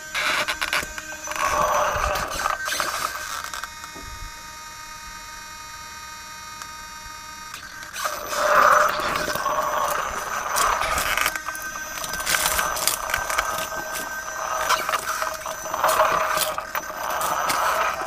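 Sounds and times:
electric motor whining: 0:00.0 - 0:18.0
tyres crunching on gravel: 0:00.8 - 0:03.3, 0:07.6 - 0:18.0.

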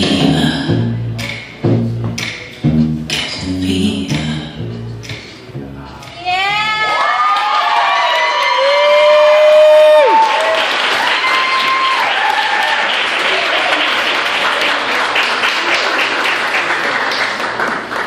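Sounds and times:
shouts and cheers: 0:06.3 - 0:13.9
audience clapping: 0:06.9 - 0:18.0.

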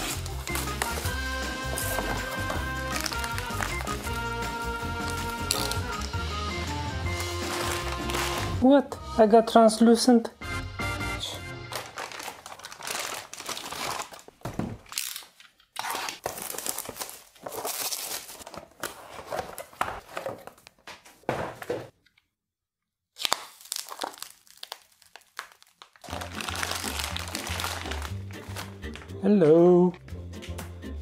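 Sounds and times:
plastic packaging crinkling: 0:00.0 - 0:04.4, 0:05.0 - 0:06.2, 0:07.1 - 0:08.6, 0:11.6 - 0:20.8, 0:23.2 - 0:29.2.

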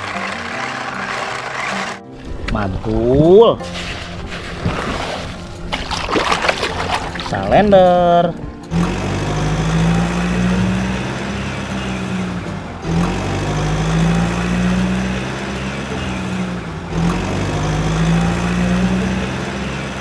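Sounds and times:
heavy engine idling: 0:00.0 - 0:02.0, 0:08.4 - 0:20.0.

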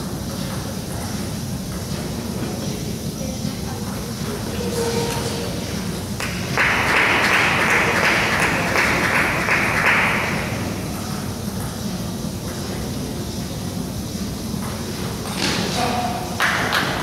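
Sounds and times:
spectators clapping: 0:06.1 - 0:10.9, 0:16.2 - 0:17.0.

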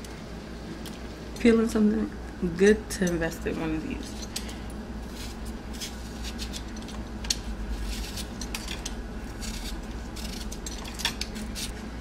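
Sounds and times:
steady low hum: 0:00.0 - 0:12.0
peeler scraping potato skin: 0:05.0 - 0:11.8.

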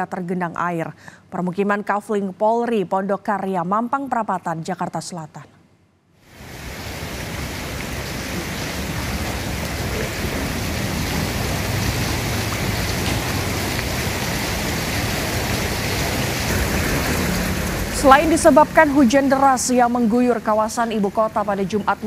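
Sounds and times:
water hissing: 0:06.3 - 0:20.0.

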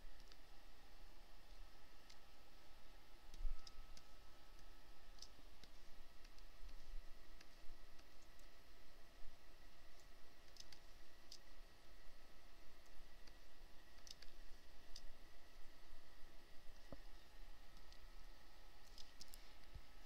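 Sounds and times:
faint low hum: 0:00.0 - 0:20.0
mouse clicks: 0:00.2 - 0:00.4, 0:03.3 - 0:06.8, 0:10.0 - 0:11.5, 0:14.0 - 0:15.1.

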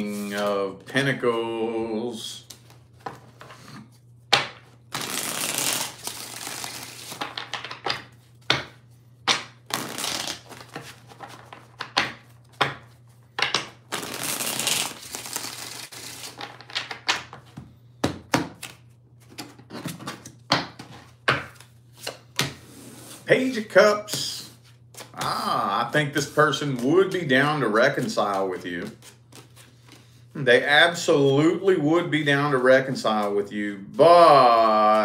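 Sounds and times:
cards sliding while shuffled: 0:00.0 - 0:00.6, 0:04.9 - 0:07.3, 0:09.7 - 0:13.2, 0:13.9 - 0:16.6, 0:27.9 - 0:30.3.

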